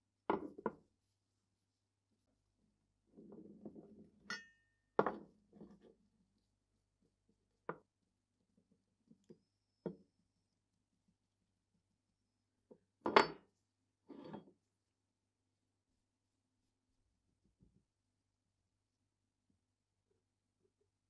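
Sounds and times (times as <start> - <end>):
ringing metallic clink: 4.3 - 4.6.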